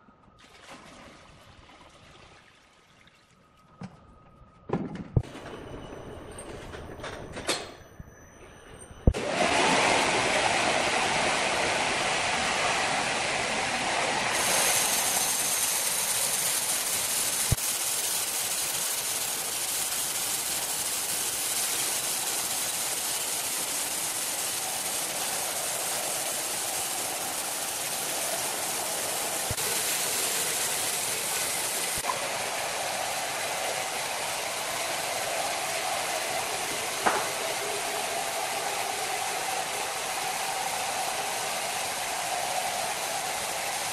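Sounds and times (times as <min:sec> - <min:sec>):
band saw cutting log: 0:36.5 - 0:37.6.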